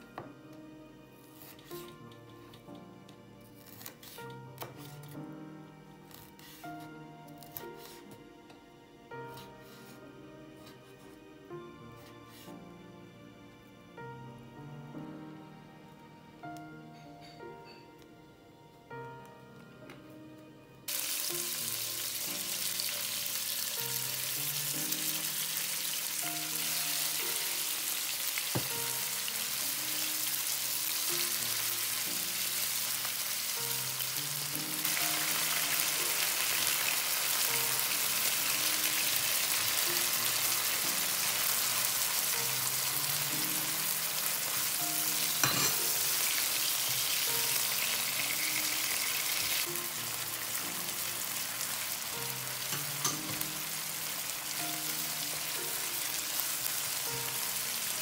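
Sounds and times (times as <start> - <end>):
food sizzling in oil: 20.9 - 58.0.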